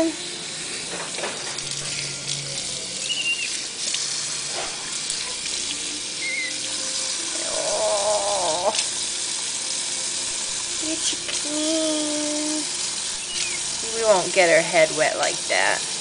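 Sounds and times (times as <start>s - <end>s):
faucet water splashing into sink: 0.0s - 16.0s
animal high squeaks: 3.0s - 3.6s, 6.2s - 6.6s, 13.2s - 13.7s
animal wavering cry: 3.0s - 3.7s, 6.2s - 6.7s, 7.4s - 8.8s, 13.2s - 13.8s.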